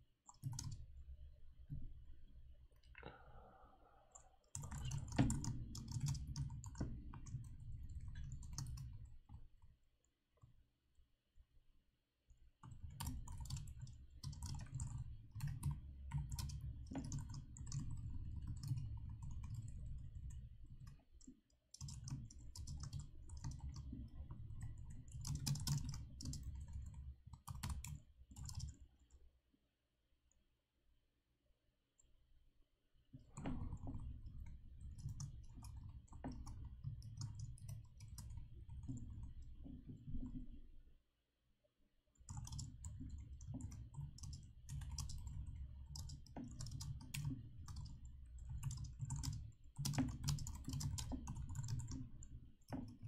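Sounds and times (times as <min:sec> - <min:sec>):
typing on a computer keyboard: 0:00.2 - 0:01.0, 0:04.1 - 0:09.7, 0:12.6 - 0:29.2, 0:33.2 - 0:40.5, 0:42.2 - 0:53.0.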